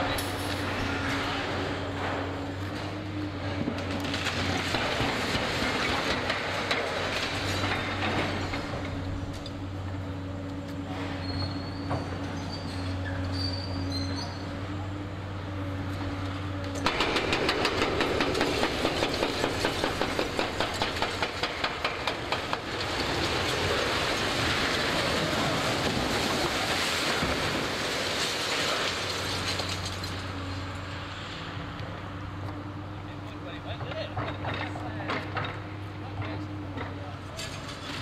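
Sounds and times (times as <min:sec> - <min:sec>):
concrete structure collapsing: 0:00.0 - 0:09.6, 0:16.8 - 0:30.6, 0:33.6 - 0:38.0
excavator engine hum: 0:00.0 - 0:26.8, 0:28.8 - 0:38.0.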